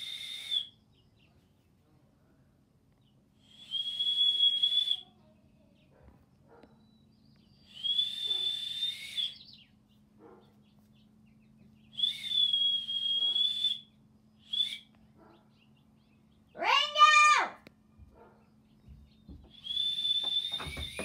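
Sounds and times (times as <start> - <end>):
loud cry rising and falling: 16.6 - 17.6
metal whistle blasts: 19.5 - 21.0.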